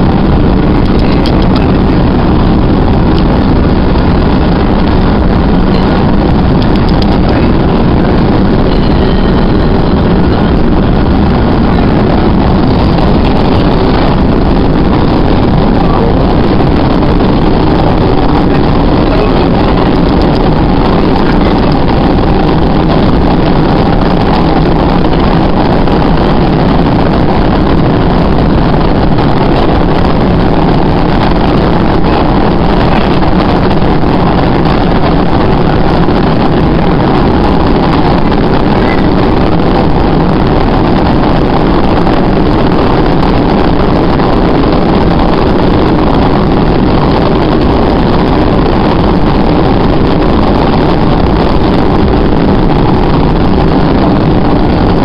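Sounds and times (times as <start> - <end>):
subway train running in tunnel: 0.0 - 37.5.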